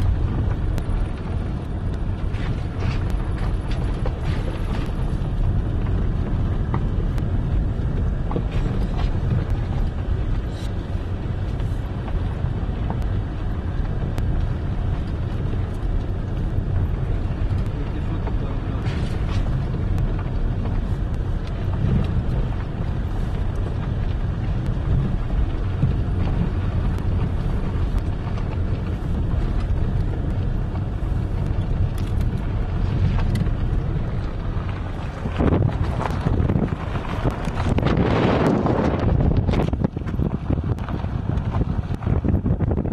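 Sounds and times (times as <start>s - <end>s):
car knocks and rattles: 0.0s - 42.9s
engine and tyres rumbling: 0.0s - 42.9s.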